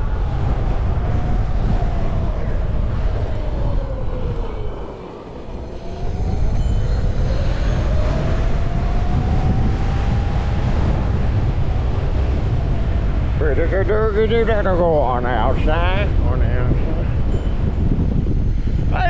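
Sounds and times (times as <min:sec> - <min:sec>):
wind rumble on microphone: 0:00.0 - 0:19.0.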